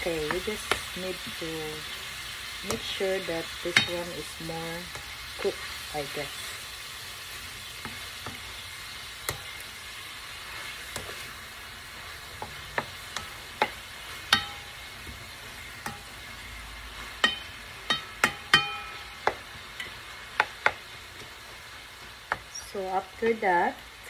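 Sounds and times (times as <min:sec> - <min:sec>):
shrimp sizzling in a pan: 0:00.0 - 0:24.0
spatula knocking against pan: 0:12.4 - 0:14.7, 0:17.2 - 0:20.8.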